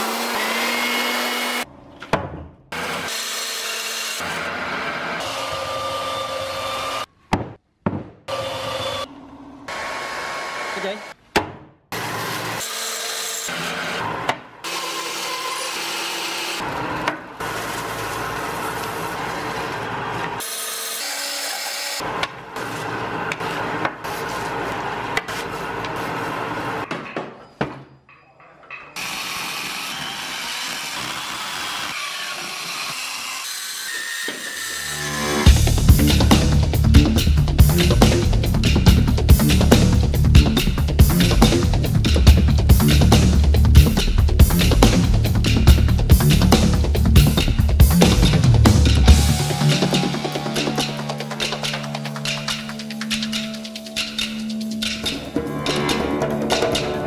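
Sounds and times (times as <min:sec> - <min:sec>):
angle grinder cutting wood: 0:00.0 - 0:01.7, 0:02.7 - 0:07.1, 0:09.7 - 0:11.2, 0:11.9 - 0:26.8, 0:29.0 - 0:35.6
bandsaw cutting wood: 0:00.0 - 0:01.7, 0:02.7 - 0:07.1, 0:09.7 - 0:11.2, 0:11.9 - 0:26.8, 0:29.0 - 0:35.7, 0:48.0 - 0:52.7.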